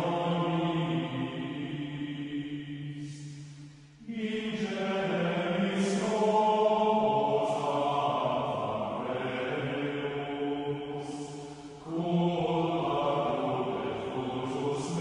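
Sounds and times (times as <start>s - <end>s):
voices chanting plainchant: 0.0s - 15.0s.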